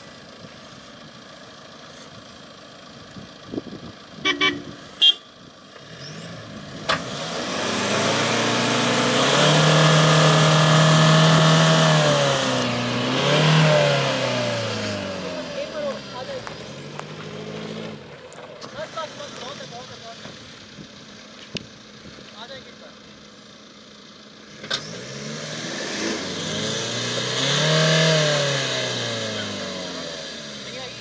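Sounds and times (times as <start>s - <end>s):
diesel engine revving under load: 0.0s - 21.2s, 23.2s - 31.0s
car horn toots: 4.2s - 5.4s.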